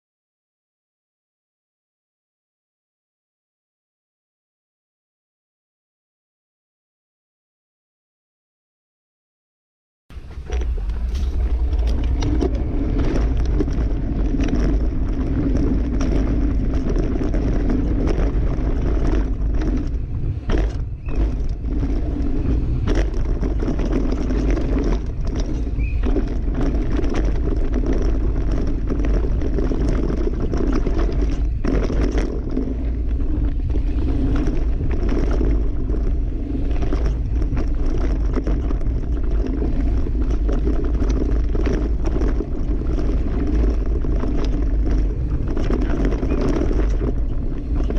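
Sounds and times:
bike rattling on rough dirt: 0:10.1 - 0:47.9
wind rushing over microphone: 0:10.1 - 0:47.9.

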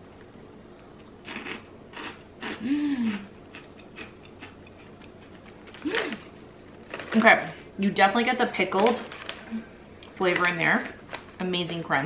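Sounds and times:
crunching and chewing rice cracker: 0:00.8 - 0:07.3, 0:08.7 - 0:11.4
person humming mm: 0:02.6 - 0:03.3.

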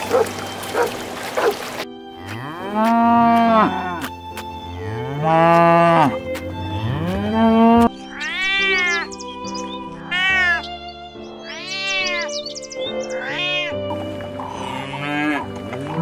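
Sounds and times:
cow mooing: 0:02.2 - 0:04.0, 0:04.8 - 0:06.2, 0:14.4 - 0:16.0.

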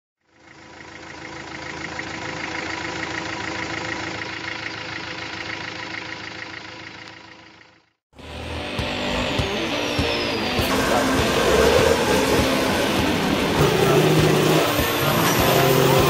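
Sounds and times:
engine idling with knock: 0:00.2 - 0:08.0.

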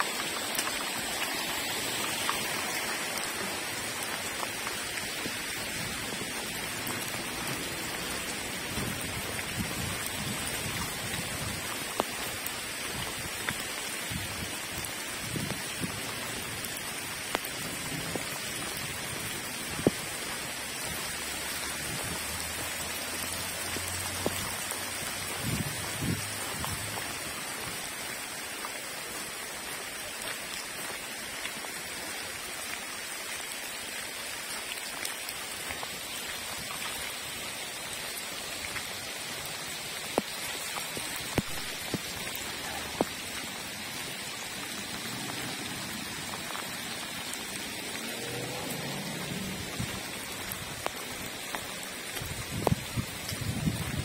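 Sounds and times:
heavy rain on pavement: 0:00.0 - 0:54.0.

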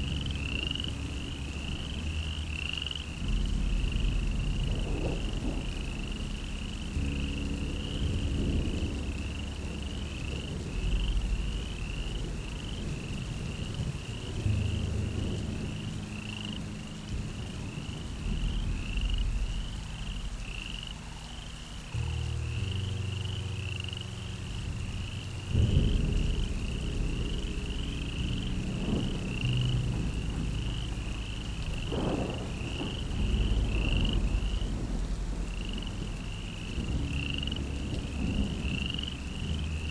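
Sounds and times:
low drone: 0:00.0 - 0:39.9.

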